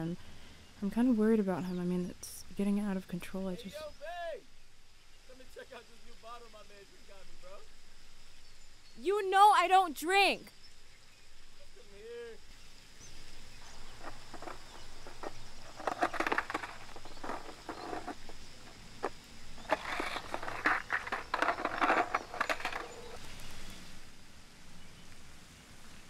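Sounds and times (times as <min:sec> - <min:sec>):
skateboard rattling on asphalt: 0:13.4 - 0:23.9.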